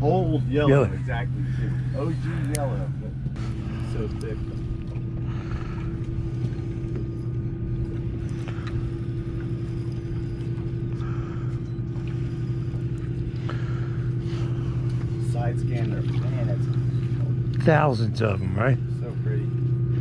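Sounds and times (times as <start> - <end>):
boat engine running: 0.0 - 20.0.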